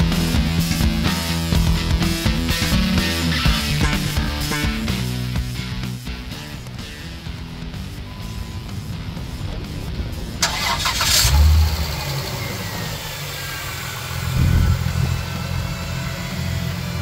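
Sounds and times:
car engine idling: 0.0 - 17.0
starter motor cranking: 10.4 - 15.3.

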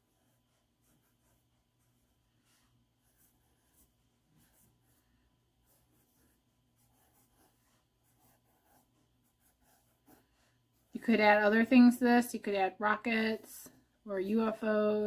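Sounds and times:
pencil scratching on paper: 0.0 - 11.9.

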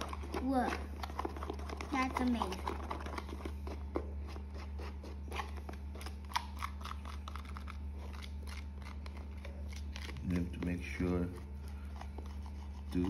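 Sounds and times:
soft squishy clicks and scrapes: 0.0 - 13.0
spoon stirring slime in a bowl: 9.0 - 13.0.

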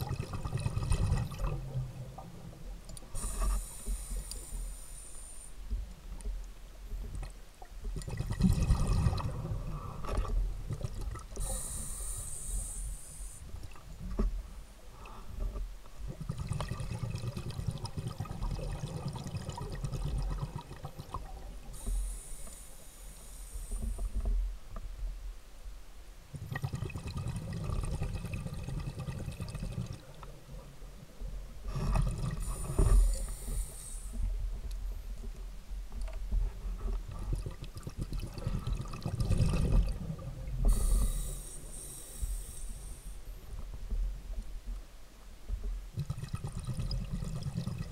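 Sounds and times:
regulator inhale hiss: 3.0 - 5.8, 11.4 - 13.6, 21.7 - 24.4, 31.7 - 35.1, 40.6 - 43.6
exhaled bubbles rushing: 8.0 - 9.6, 37.4 - 40.6
underwater exhalation bubbling: 8.0 - 9.6, 16.2 - 21.4, 31.7 - 33.6, 37.1 - 41.3, 46.0 - 47.9.

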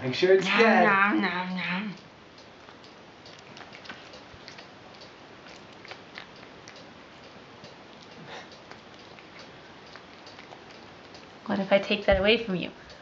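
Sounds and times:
cat chewing with crunching clicks: 2.6 - 11.5.

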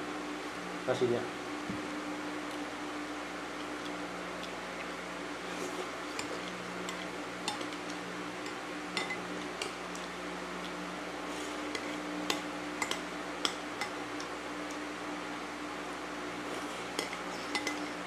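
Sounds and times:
spoon scraping a plate: 16.5 - 18.0.

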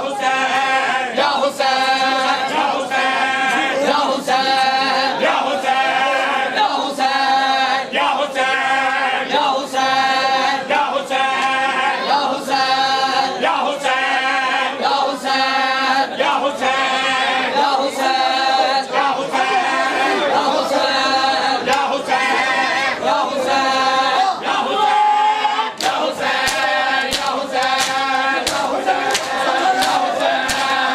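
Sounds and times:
men chanting in chorus: 0.0 - 30.9
chest slaps in steady beat: 21.7 - 21.9, 25.8 - 30.9.

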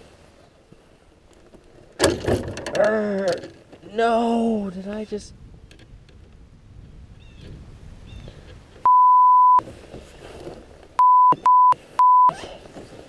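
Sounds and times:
censor bleeps: 8.9 - 9.6, 11.0 - 12.4.

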